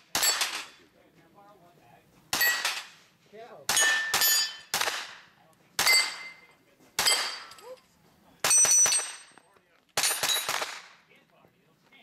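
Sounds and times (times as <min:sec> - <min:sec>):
carbine gunshots: 0:00.0 - 0:00.8, 0:02.3 - 0:03.0, 0:03.7 - 0:06.4, 0:07.0 - 0:07.5, 0:08.4 - 0:11.1
steel targets ringing: 0:02.3 - 0:02.9, 0:03.7 - 0:04.8, 0:05.8 - 0:07.6, 0:08.4 - 0:09.4.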